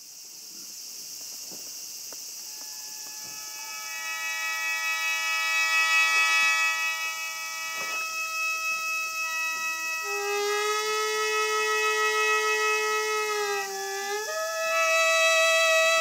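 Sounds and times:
steady high hiss: 0.0s - 16.0s
sustained wind-like chord: 2.5s - 10.2s.

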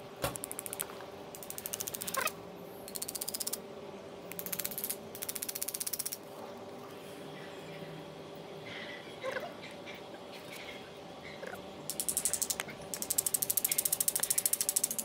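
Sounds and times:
faint steady hum: 0.0s - 15.0s
rapid even clicking: 11.9s - 15.0s.

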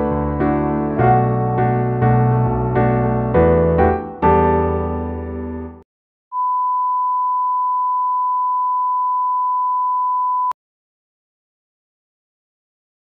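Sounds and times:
steady electronic beep tone: 6.3s - 10.6s.

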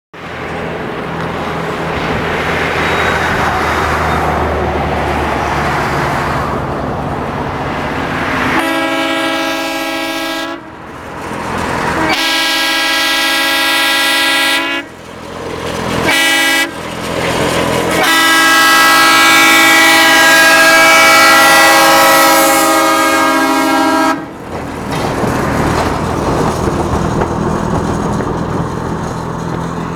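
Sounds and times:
rail motorcar engine running: 0.2s - 29.9s
air horn blasts: 8.5s - 10.7s, 12.0s - 14.9s, 16.0s - 16.8s, 18.0s - 24.3s.

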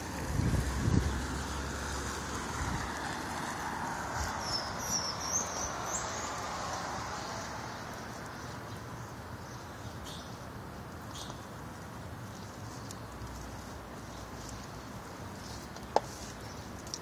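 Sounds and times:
street traffic: 0.0s - 17.0s
wind: 0.0s - 17.0s
high bird chirps: 4.3s - 6.4s.

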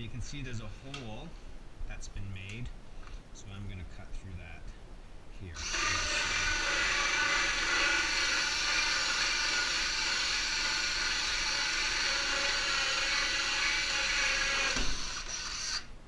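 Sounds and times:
drill hole saw cutting wood: 5.6s - 15.9s.

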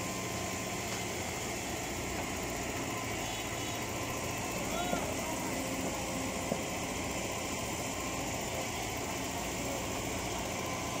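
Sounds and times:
excavator diesel engine running: 0.0s - 11.0s.

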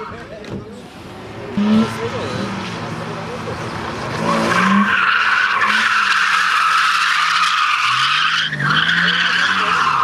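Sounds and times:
tyres squealing: 3.6s - 10.0s.

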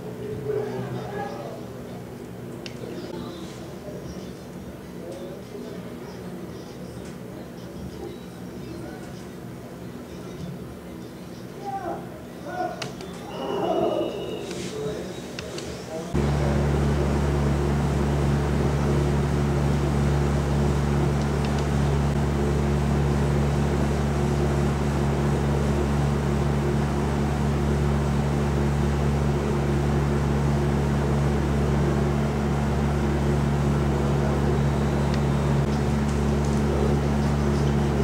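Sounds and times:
loud machine-like hum: 16.1s - 38.0s.

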